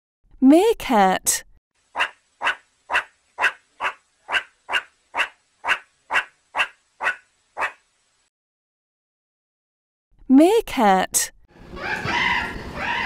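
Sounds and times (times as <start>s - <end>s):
meerkat calling: 2.0s - 7.8s, 11.7s - 13.0s.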